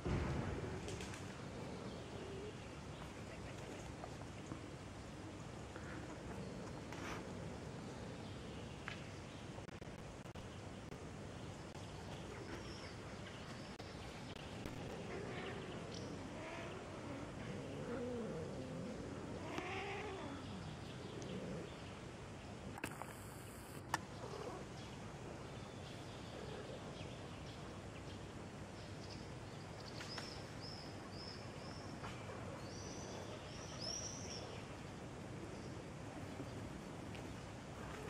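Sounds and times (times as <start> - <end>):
cats yowling: 14.9 - 20.5.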